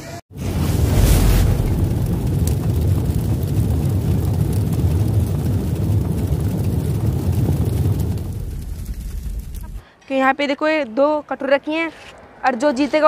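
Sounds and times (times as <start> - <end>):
deep rumble: 0.3 - 9.8.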